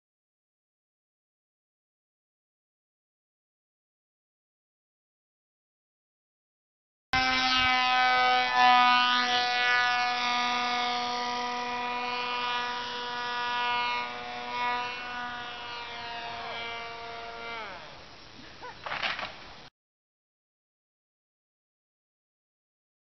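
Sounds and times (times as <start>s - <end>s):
model jet motor whine: 7.2s - 18.1s.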